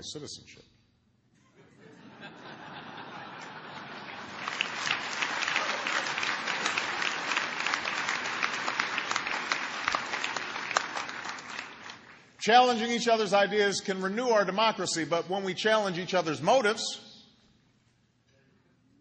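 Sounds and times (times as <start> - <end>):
audience clapping: 3.1 - 13.0.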